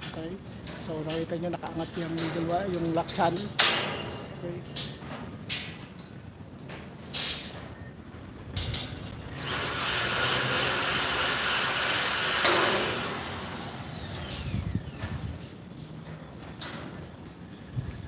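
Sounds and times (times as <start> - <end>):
power drill whirring: 9.3 - 15.0.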